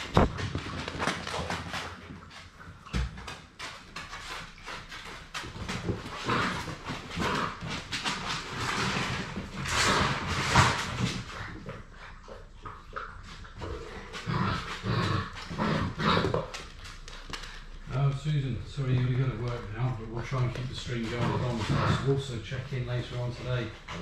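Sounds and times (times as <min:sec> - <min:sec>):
claws clicking on hard floor: 0:00.0 - 0:11.6, 0:14.2 - 0:18.2.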